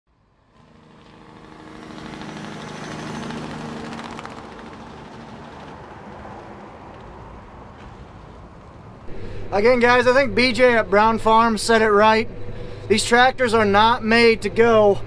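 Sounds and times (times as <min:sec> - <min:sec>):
farm machinery engine running: 0:00.4 - 0:06.1, 0:09.1 - 0:15.0.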